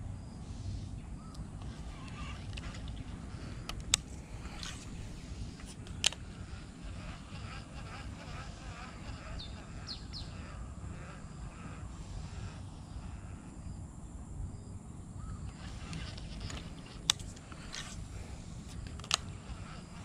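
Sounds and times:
sharp clicks: 0:15.5 - 0:18.0, 0:18.6 - 0:19.3.

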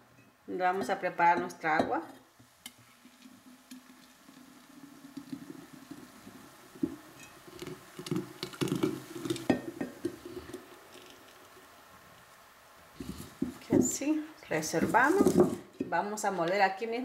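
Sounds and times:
thick liquid pouring into pitcher: 0:02.9 - 0:11.4.

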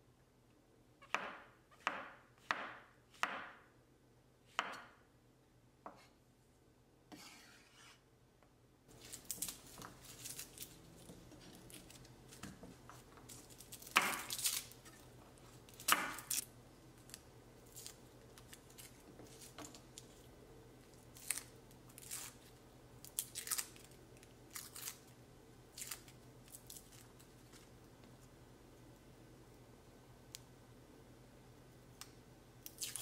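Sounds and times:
garlic skins crackling and rustling: 0:08.9 - 0:16.4.

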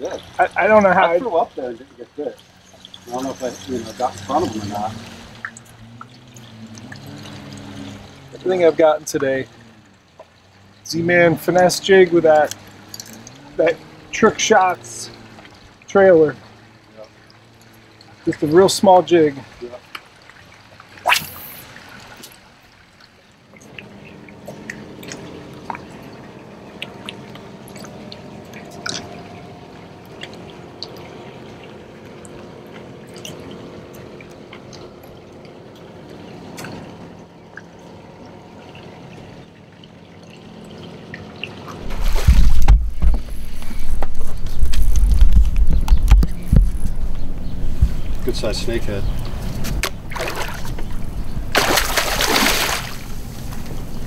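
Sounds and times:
small clicks and drips: 0:00.0 - 0:51.5
electric boat motor humming: 0:02.3 - 0:19.0, 0:23.6 - 0:54.0
loud low rumbling buffeting: 0:41.8 - 0:54.0.

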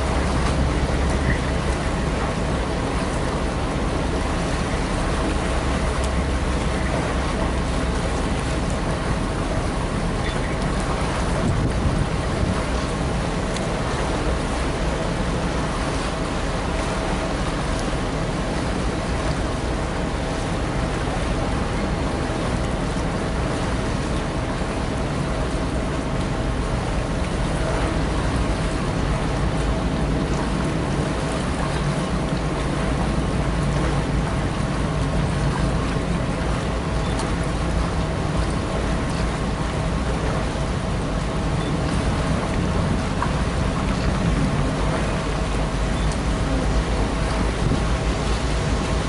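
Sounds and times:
wind buffeting microphone: 0:08.9 - 0:16.0, 0:37.8 - 0:49.0.

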